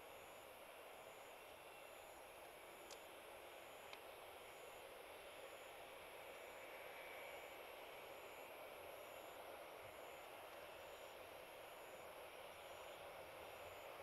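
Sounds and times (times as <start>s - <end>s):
faint outdoor night hiss: 0.0s - 14.0s
faint ticks: 2.8s - 3.1s, 10.5s - 10.7s.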